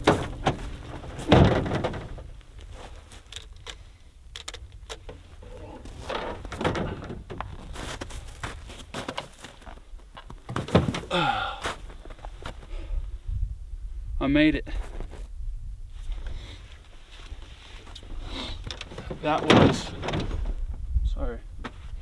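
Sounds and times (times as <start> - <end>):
gear knocking in metal truck bed: 0.0 - 2.3
tailgate dropping open: 0.0 - 2.4, 5.6 - 7.5, 18.8 - 20.5.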